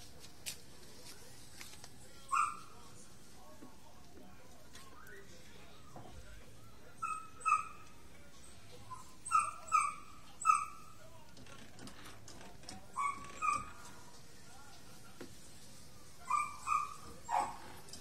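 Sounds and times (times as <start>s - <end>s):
animal yelping: 7.0s - 7.8s, 8.9s - 10.9s, 13.0s - 13.8s, 16.3s - 17.6s.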